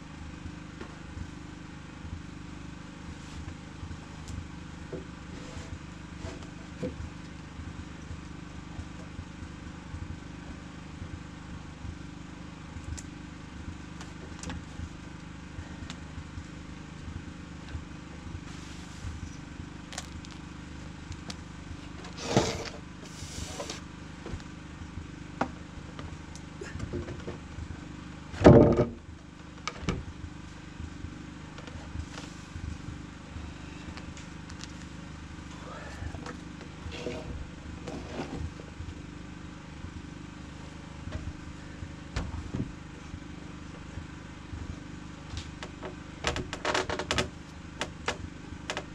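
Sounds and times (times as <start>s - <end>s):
steady low hum: 0.0s - 48.9s
wooden planks knocking: 28.4s - 29.0s.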